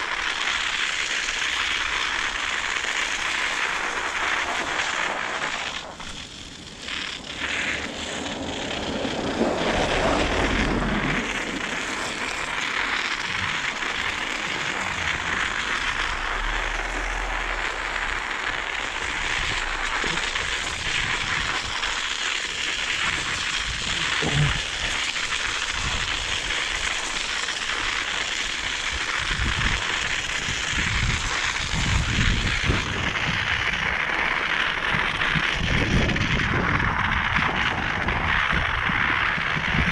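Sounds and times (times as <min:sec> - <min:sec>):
bicycle tyres and rushing air: 0:00.0 - 0:39.9
low thumps: 0:09.4 - 0:22.0.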